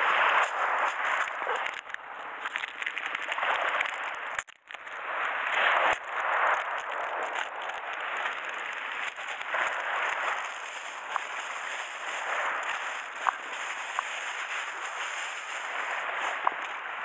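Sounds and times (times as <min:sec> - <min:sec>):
plastic bag rustling: 0:06.8 - 0:17.0.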